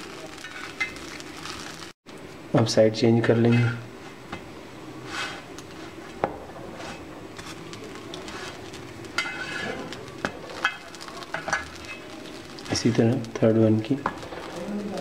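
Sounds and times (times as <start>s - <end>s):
spatula scraping a griddle: 3.4s - 4.2s, 5.0s - 12.4s.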